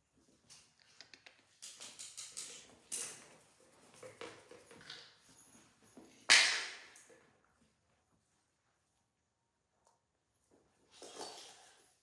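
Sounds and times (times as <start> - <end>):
animals scuffling on tiled floor: 0.2 - 6.3.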